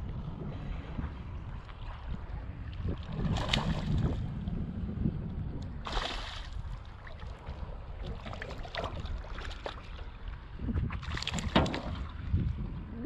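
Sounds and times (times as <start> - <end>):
wind noise on microphone: 0.0 - 13.0
fish splashing in water: 3.0 - 4.2, 5.8 - 10.0.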